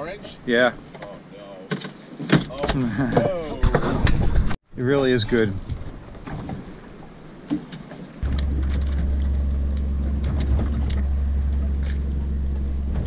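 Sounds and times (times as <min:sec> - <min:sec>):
boat engine humming: 0:05.7 - 0:13.0.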